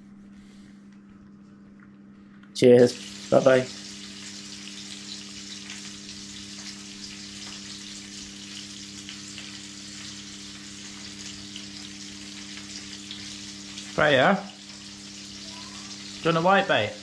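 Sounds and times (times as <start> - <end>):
hot oil sizzling in a pan: 2.6 - 17.0.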